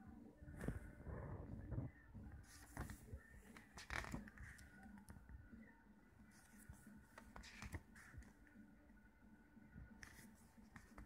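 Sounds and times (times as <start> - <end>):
photo booklet page rustling: 2.5 - 5.2, 6.4 - 8.4, 10.0 - 11.0.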